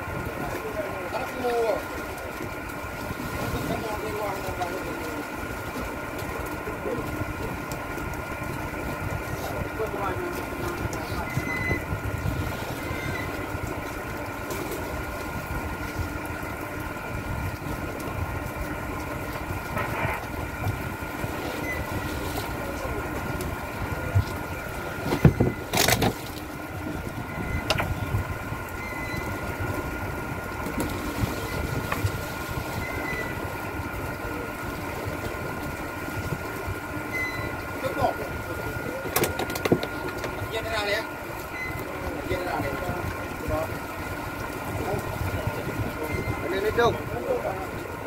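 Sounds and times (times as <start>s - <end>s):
boat engine humming: 0.0s - 48.0s.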